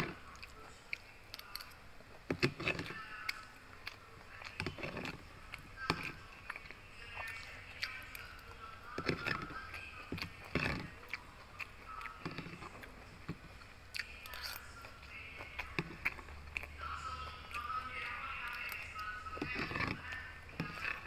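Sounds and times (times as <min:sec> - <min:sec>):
chewing mouth sounds: 0:00.0 - 0:21.0
spoon scraping plastic container: 0:02.2 - 0:03.2, 0:04.4 - 0:11.0, 0:12.0 - 0:13.6, 0:17.6 - 0:21.0.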